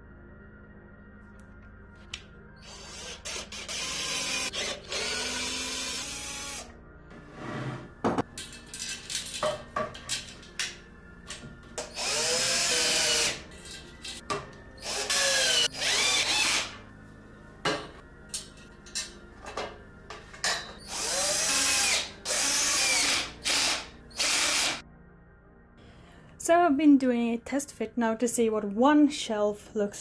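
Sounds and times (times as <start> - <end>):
power drill driving screws: 2.7 - 6.7, 11.9 - 13.4, 14.8 - 16.8, 20.8 - 24.8.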